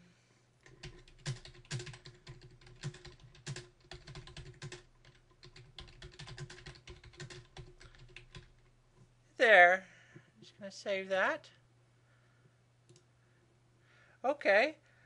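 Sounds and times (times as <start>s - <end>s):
faint steady hum: 0.0s - 15.0s
typing on computer keyboard: 0.6s - 8.6s.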